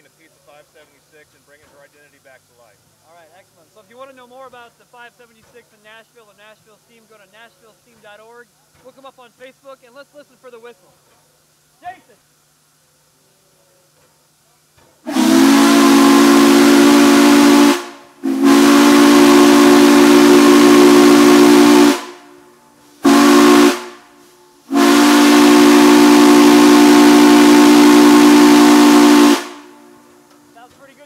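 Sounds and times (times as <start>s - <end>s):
steam hiss: 0.0s - 30.7s
steam whistle chord: 15.0s - 30.2s.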